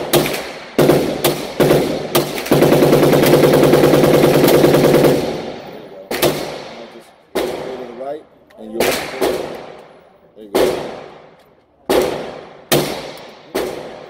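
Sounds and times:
full-auto gunfire burst: 0.0s - 8.0s, 10.5s - 11.3s, 11.9s - 14.0s.

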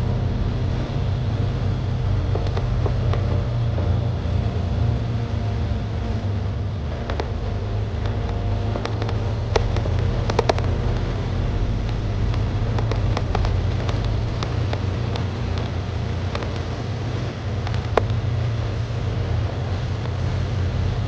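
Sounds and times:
motorcycle rumble: 0.0s - 21.0s
stones clicking under tyres: 2.2s - 4.0s, 7.0s - 16.7s, 17.6s - 18.3s.

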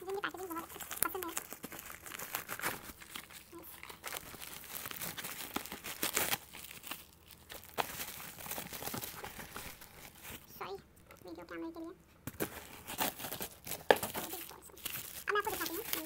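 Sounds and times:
bubble wrap crinkling: 0.0s - 16.0s.

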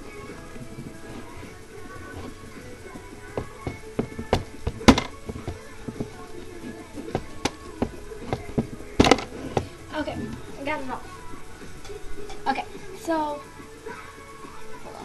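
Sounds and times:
objects clicking and knocking: 3.4s - 6.1s, 7.1s - 9.7s.

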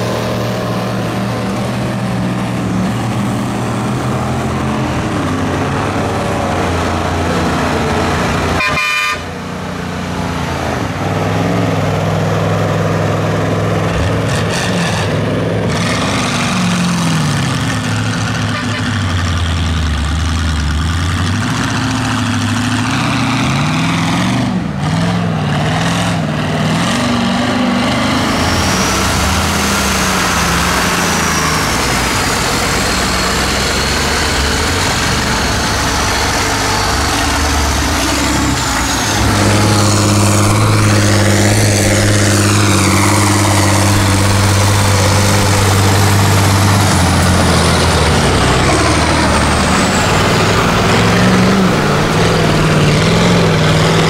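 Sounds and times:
truck engines labouring: 0.0s - 54.0s
churning mud and water: 10.0s - 54.0s.

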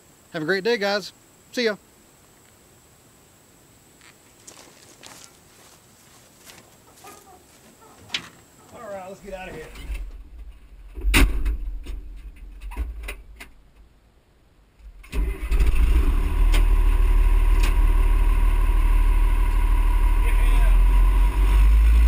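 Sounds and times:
diesel engine starting and running: 14.9s - 22.0s.

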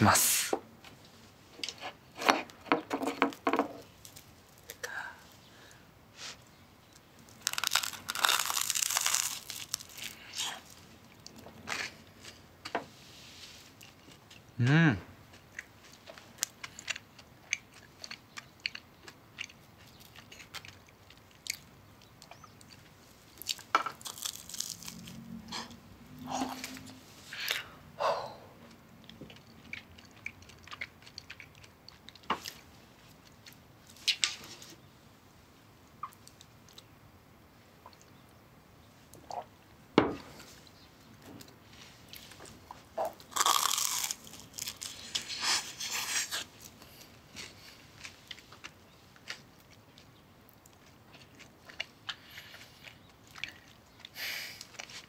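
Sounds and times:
chewing crisp toast: 6.4s - 12.4s, 15.2s - 27.7s, 28.6s - 34.2s, 41.4s - 55.0s.

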